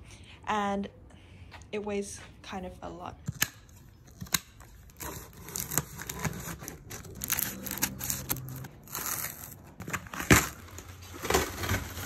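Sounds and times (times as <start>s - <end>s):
packing tape tearing: 4.1s - 12.0s.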